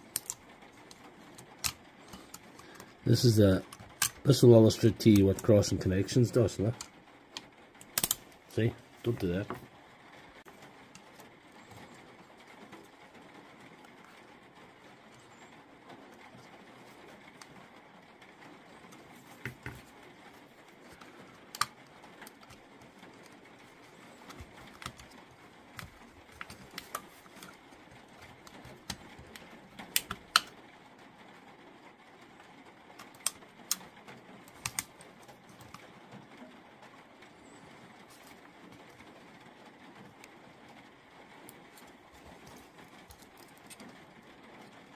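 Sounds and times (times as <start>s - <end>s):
metal tools clicking on plastic: 0.0s - 5.7s, 6.6s - 8.2s.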